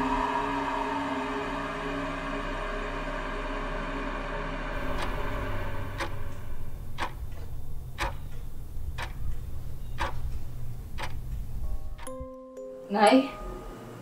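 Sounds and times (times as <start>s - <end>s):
clock ticking: 4.8s - 12.2s
held music chord: 4.8s - 14.0s
low steady hum: 4.8s - 14.0s.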